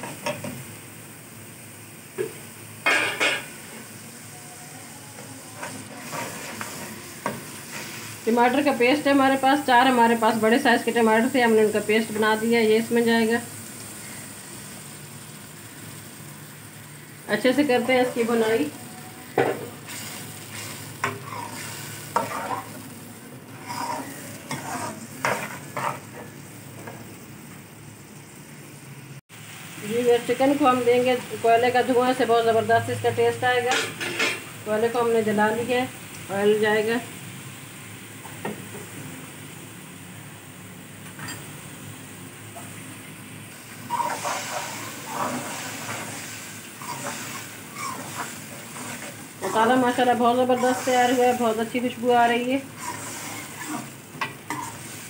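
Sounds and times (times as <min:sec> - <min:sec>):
steady hiss: 0:00.0 - 0:32.3, 0:34.2 - 0:55.0
steady sizzle: 0:00.0 - 0:55.0
spoon stirring and scraping pan: 0:05.6 - 0:08.6, 0:19.5 - 0:22.8, 0:23.5 - 0:27.0, 0:43.8 - 0:51.6, 0:52.6 - 0:55.0.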